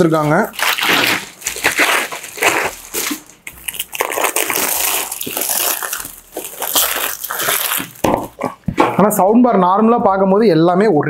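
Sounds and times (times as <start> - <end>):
plastic wrapping crinkling: 0.0 - 8.8.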